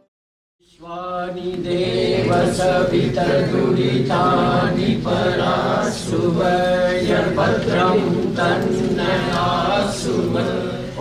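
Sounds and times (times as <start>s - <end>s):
voices chanting in a drone: 0.6s - 11.0s.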